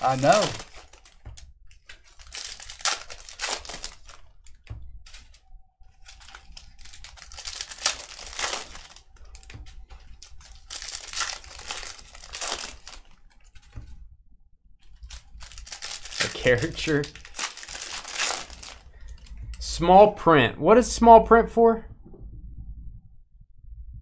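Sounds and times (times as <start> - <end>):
card pack wrappers tearing and crinkling: 0.0 - 5.4, 6.0 - 13.7, 14.8 - 19.3.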